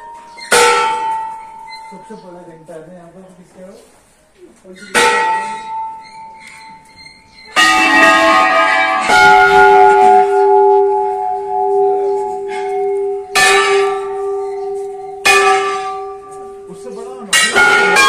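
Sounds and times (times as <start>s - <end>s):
brass bells ringing: 0.0s - 2.9s, 4.8s - 18.0s.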